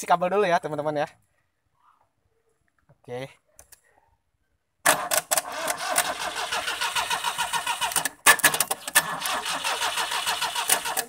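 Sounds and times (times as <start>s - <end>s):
starter motor cranking engine: 4.9s - 11.0s.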